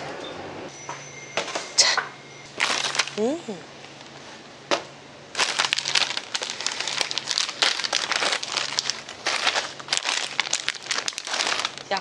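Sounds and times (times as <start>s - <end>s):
plastic bags crinkling: 2.5s - 3.4s, 5.3s - 12.0s.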